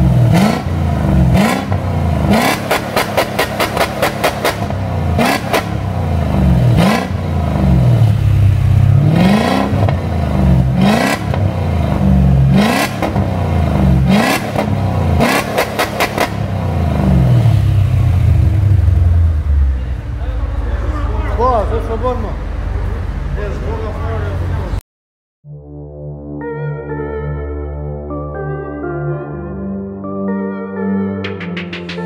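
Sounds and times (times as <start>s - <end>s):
car engine revving: 0.0s - 24.8s.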